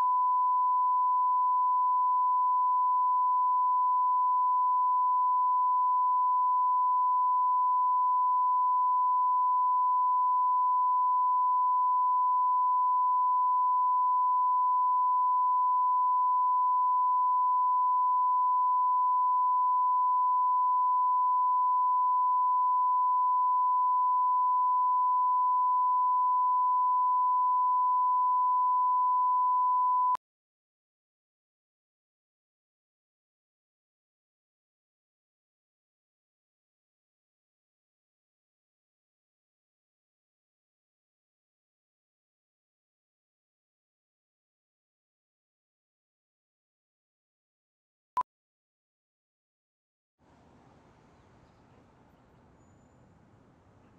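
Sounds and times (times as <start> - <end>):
sine-wave test tone: 0.0 - 30.2.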